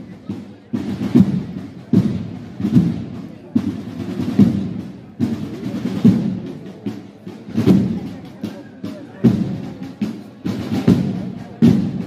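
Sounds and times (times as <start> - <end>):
procession drums beating a march: 0.0 - 12.0.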